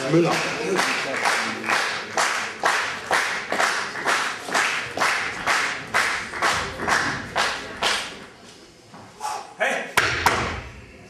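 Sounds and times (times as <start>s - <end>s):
audience clapping in unison: 0.0s - 8.2s.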